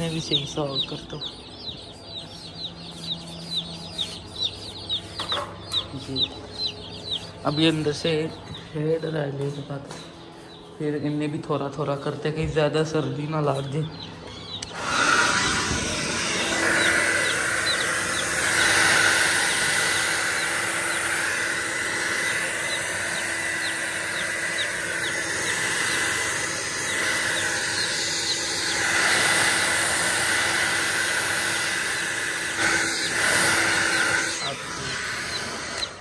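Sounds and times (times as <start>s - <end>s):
chicks peeping: 0.0s - 36.0s
hair dryer running: 14.6s - 36.0s.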